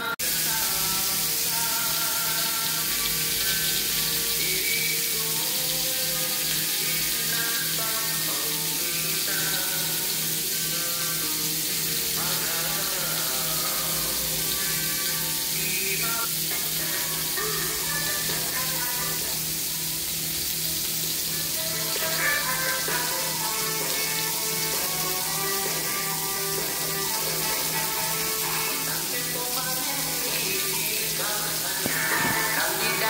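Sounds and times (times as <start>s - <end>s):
hot dogs sizzling in oil: 0.0s - 33.0s
music with steady beat: 21.3s - 33.0s.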